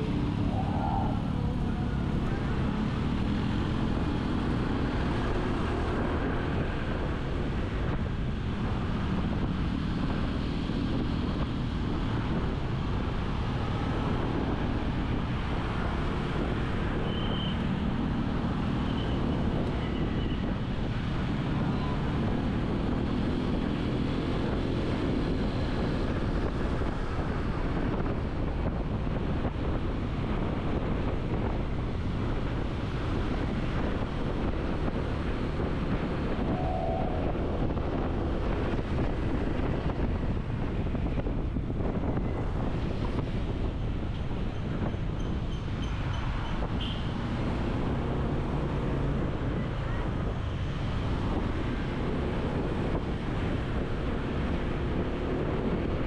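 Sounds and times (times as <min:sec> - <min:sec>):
traffic noise: 0:00.0 - 0:56.0
vehicle rumble on road: 0:00.0 - 0:56.0
wind buffeting microphone: 0:17.7 - 0:56.0.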